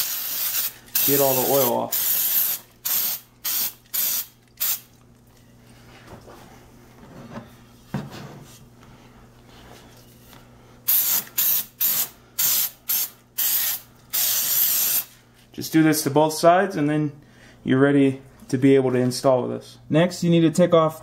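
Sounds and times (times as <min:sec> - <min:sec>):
aerosol spray hissing: 0:00.0 - 0:04.9, 0:10.9 - 0:15.1.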